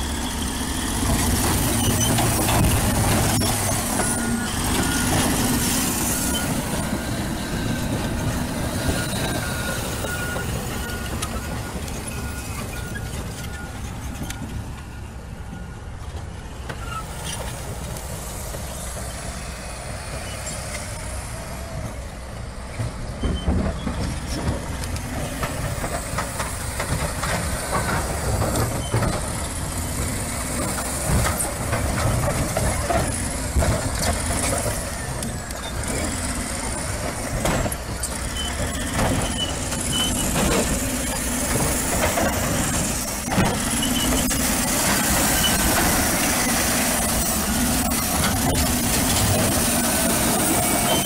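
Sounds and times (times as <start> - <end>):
bulldozer diesel engine under load: 0.0 - 51.0.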